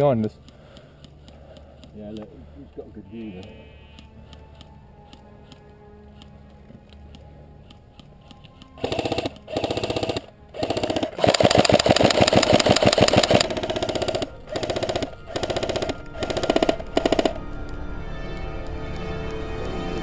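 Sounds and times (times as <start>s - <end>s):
gearbox motor whine: 8.8s - 17.3s
airsoft rifle firing bursts: 8.8s - 17.5s.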